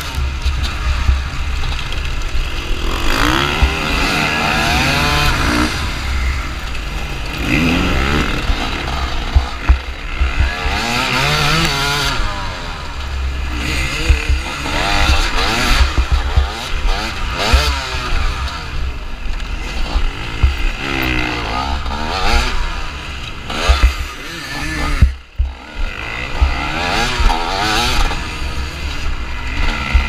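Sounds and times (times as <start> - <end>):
motorcycle engine revving hard: 0.0 - 30.0
other dirt bikes running: 0.0 - 30.0.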